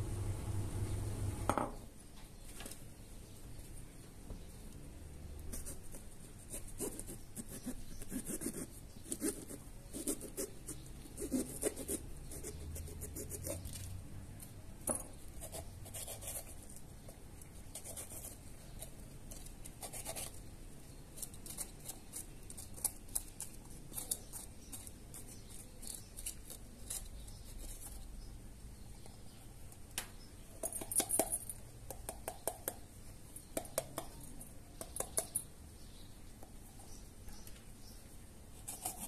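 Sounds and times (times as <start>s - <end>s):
knife cutting and scraping pepper: 5.5s - 14.0s, 15.1s - 16.8s, 17.7s - 28.1s, 38.5s - 39.0s.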